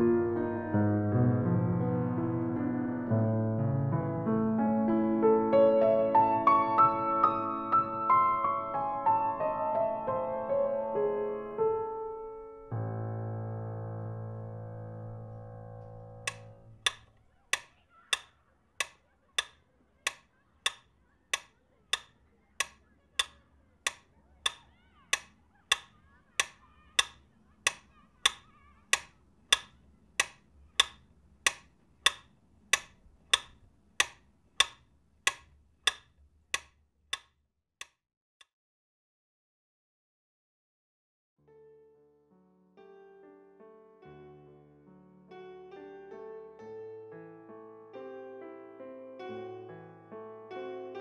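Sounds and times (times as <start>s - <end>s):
clock ticking: 16.3s - 37.3s.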